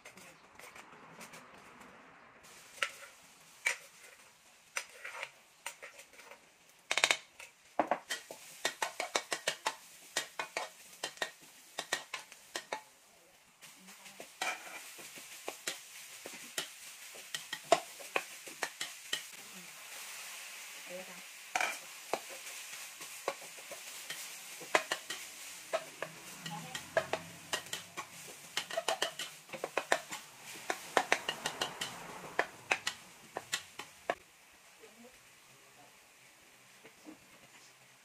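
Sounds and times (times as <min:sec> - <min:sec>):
metal spatula scraping wok: 0:00.0 - 0:12.9, 0:13.6 - 0:34.2
meat sizzling in a wok: 0:02.4 - 0:38.0.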